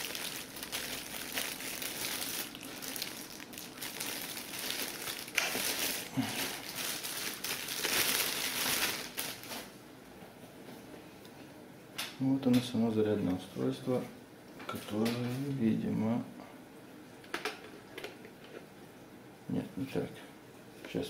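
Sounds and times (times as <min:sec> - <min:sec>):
plastic bag crinkling: 0:00.0 - 0:09.8.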